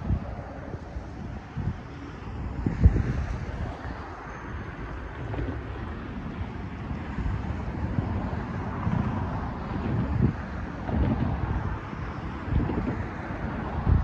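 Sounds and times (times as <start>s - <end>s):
wind gusting on microphone: 0.0s - 14.0s.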